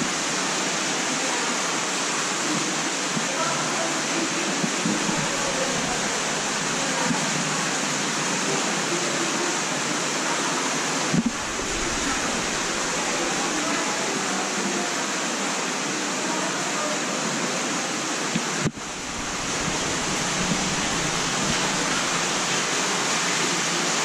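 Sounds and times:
steady rushing noise: 0:04.4 - 0:07.1, 0:11.1 - 0:14.2, 0:18.3 - 0:23.8.

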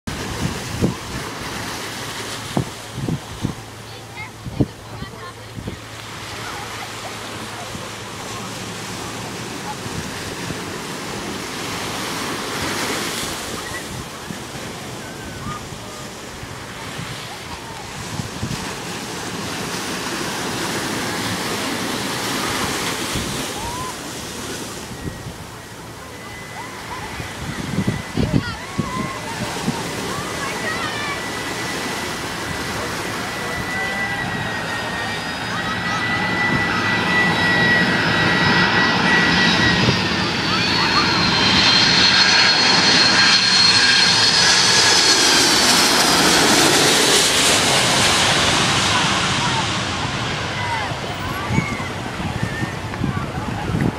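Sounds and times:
wind on microphone: 0:00.1 - 0:06.6, 0:09.1 - 0:30.9, 0:45.6 - 0:53.9
jet engines rushing and whining: 0:00.1 - 0:53.9.

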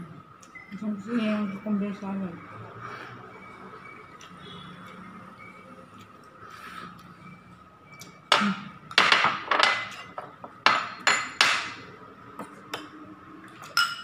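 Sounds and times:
ceramic bowls and ladle clattering: 0:08.3 - 0:11.8, 0:13.7 - 0:14.0.

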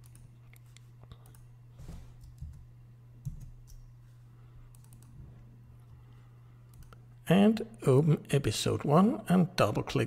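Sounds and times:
computer mouse clicks: 0:00.0 - 0:01.5, 0:04.7 - 0:05.2, 0:06.7 - 0:07.0
steady low hum: 0:00.0 - 0:10.0.

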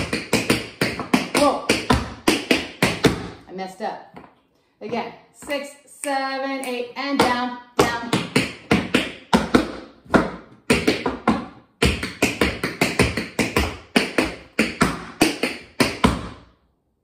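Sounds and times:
tap shoes clicking on hard floor: 0:00.0 - 0:03.3.

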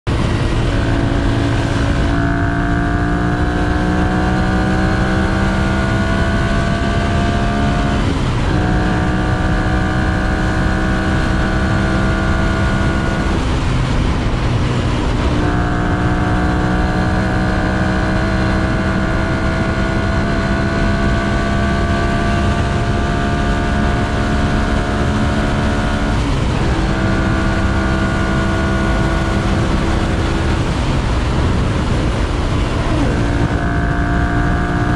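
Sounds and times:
motorcycle engine accelerating: 0:00.0 - 0:34.9
low rush of wind: 0:00.1 - 0:34.9.

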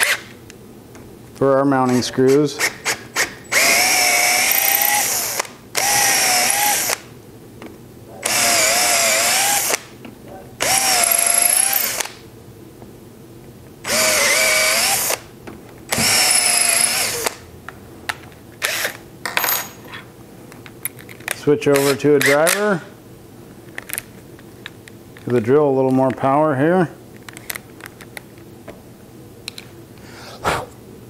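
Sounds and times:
cordless drill whining into wood: 0:02.9 - 0:07.0, 0:08.2 - 0:09.8, 0:10.6 - 0:12.1, 0:13.8 - 0:15.2, 0:15.9 - 0:17.4.

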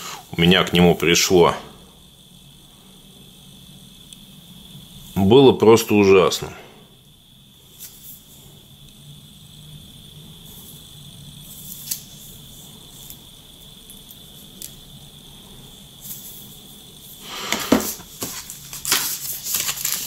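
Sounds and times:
faint high-pitched whine: 0:00.0 - 0:20.0
rustling and knocks: 0:17.4 - 0:19.2.

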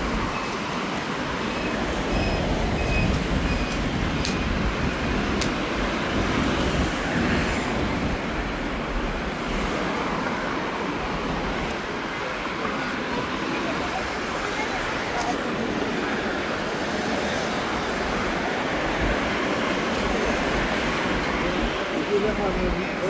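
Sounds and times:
street traffic: 0:00.0 - 0:23.0.

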